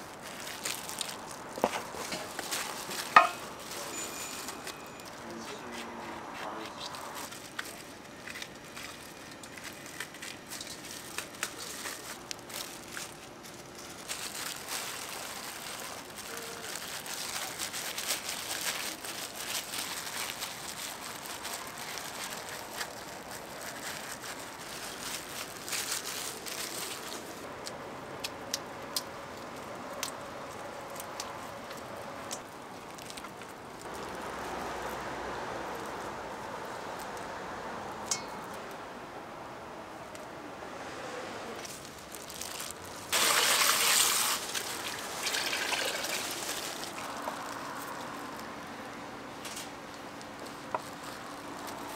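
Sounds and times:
batter deep-frying in oil: 0:41.7 - 0:48.2.

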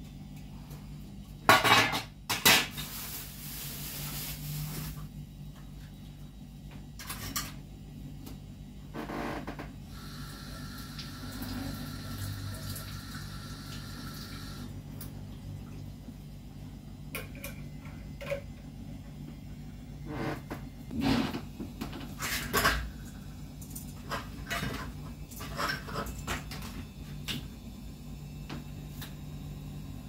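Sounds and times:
tap water running: 0:09.9 - 0:16.0.

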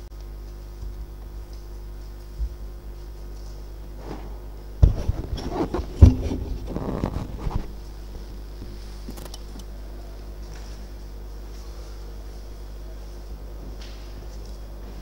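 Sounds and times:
steady low hum: 0:00.0 - 0:15.0
sharp knocks: 0:04.0 - 0:07.7
papers rustling: 0:04.0 - 0:08.0.

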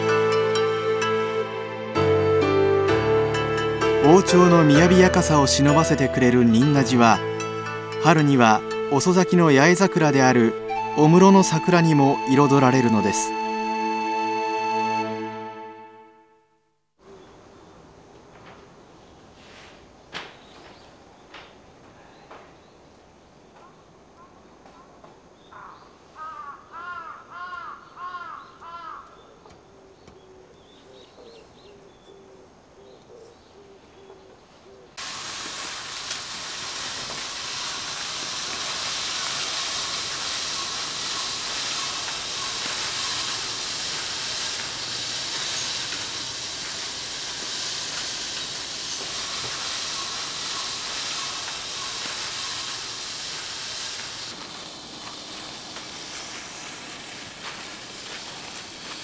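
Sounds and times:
crow cawing: 0:25.5 - 0:29.2, 0:40.5 - 0:43.4, 0:49.8 - 0:52.7
rake scratching through gravel: 0:40.6 - 0:59.0.

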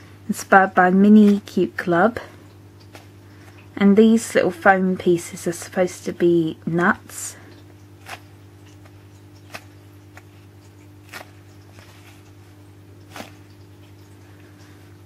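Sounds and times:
foam squishy crackling: 0:07.8 - 0:14.8.

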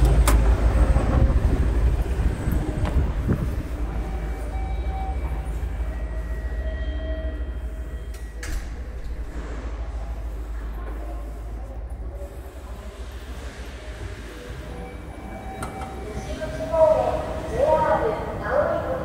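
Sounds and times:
train rumbling past: 0:00.0 - 0:08.2.

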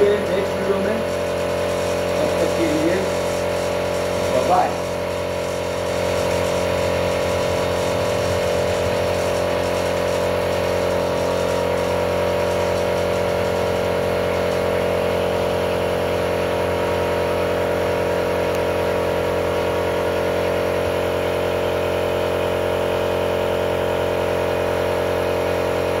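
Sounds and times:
engine humming steadily: 0:00.0 - 0:26.0.

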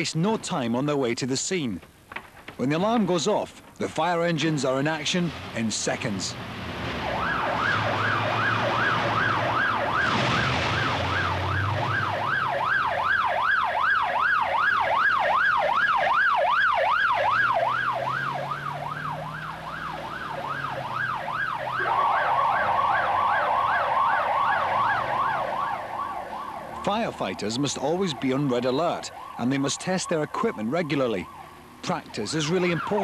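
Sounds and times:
fire engine siren yelping: 0:06.5 - 0:33.0
faster wavering siren: 0:07.0 - 0:26.8
truck engine running: 0:17.0 - 0:27.7.

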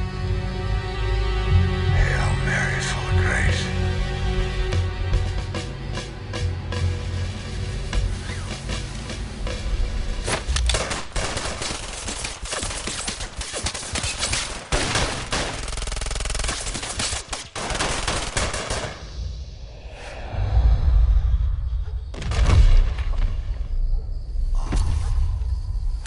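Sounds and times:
rapid handgun shots: 0:10.3 - 0:19.0.

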